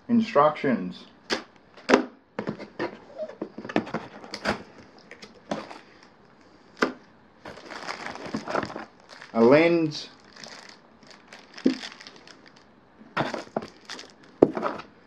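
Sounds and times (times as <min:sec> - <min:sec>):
packaging crinkling: 0:06.8 - 0:14.9
hands rummaging in cardboard box: 0:07.5 - 0:09.5, 0:10.1 - 0:12.6, 0:13.2 - 0:14.9.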